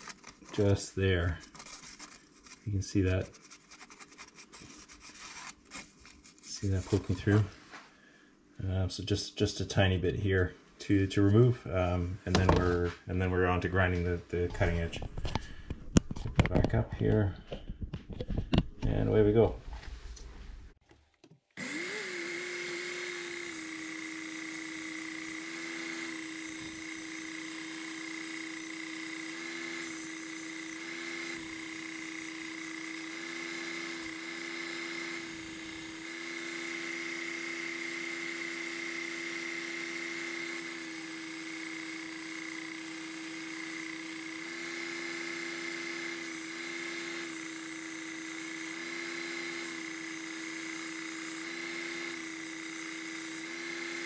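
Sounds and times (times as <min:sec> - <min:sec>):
knife grinding on abrasive belt: 0:00.0 - 0:06.8
belt sharpener motor whining: 0:21.6 - 0:54.0.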